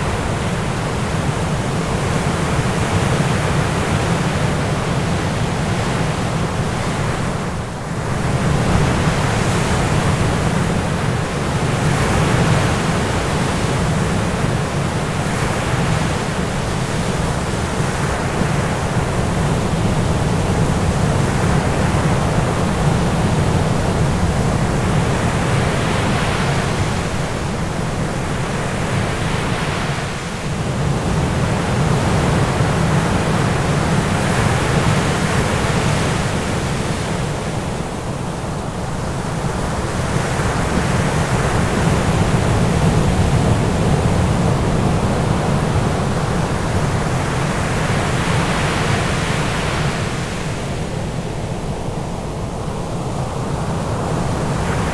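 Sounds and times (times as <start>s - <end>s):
ocean surf rushing: 0.0s - 54.9s.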